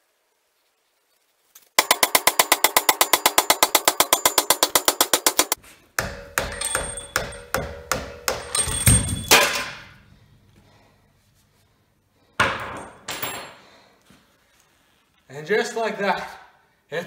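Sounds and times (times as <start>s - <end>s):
fast hammer strikes on metal: 1.8s - 9.6s
heavy hammer blows with ringing metal: 1.8s - 9.7s.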